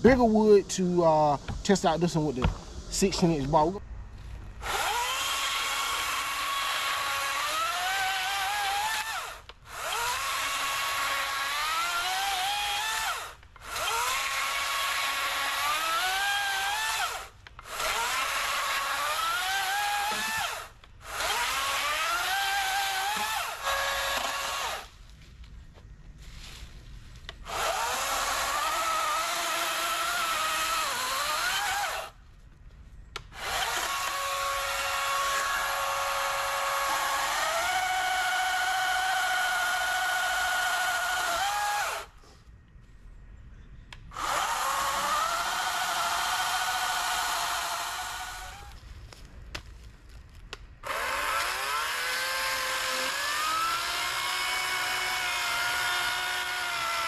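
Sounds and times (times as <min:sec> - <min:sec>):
electric chainsaw cutting logs: 0:04.6 - 0:25.0, 0:27.3 - 0:32.2, 0:33.2 - 0:42.2, 0:44.1 - 0:48.8, 0:50.8 - 0:57.0.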